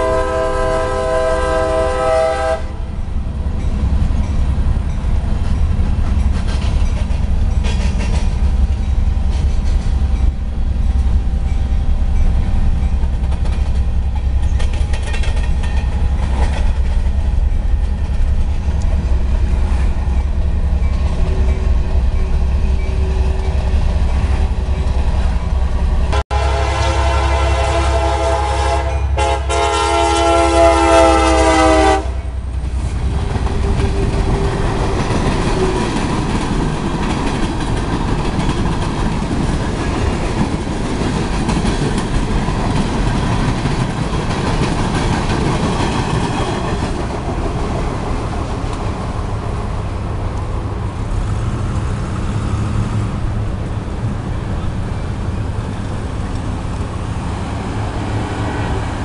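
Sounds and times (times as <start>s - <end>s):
locomotive air horn chord: 0.0s - 2.9s, 26.1s - 32.4s
freight train rumbling past: 0.0s - 59.0s.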